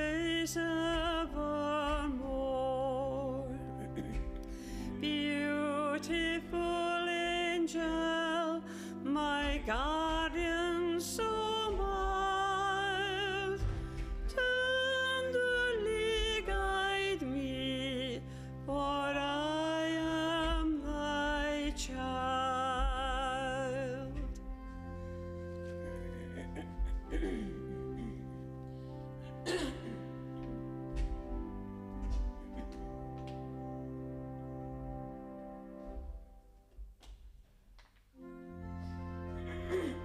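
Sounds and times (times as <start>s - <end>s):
person singing with vibrato: 0.0s - 30.2s, 39.1s - 40.0s
sustained low accompanying notes: 9.0s - 36.7s, 38.2s - 40.0s.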